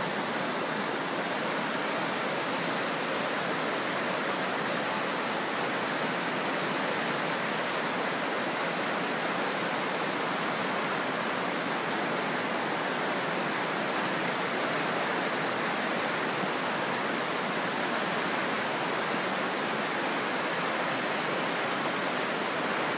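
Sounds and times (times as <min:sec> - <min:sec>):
river rushing over rapids: 0:00.0 - 0:22.9.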